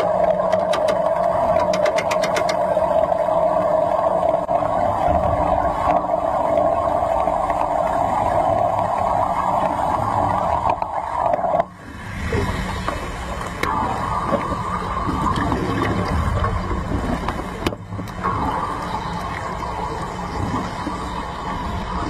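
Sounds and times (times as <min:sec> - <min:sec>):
rapid clicks: 0:00.0 - 0:02.7
underwater welding arc buzzing: 0:00.0 - 0:22.0.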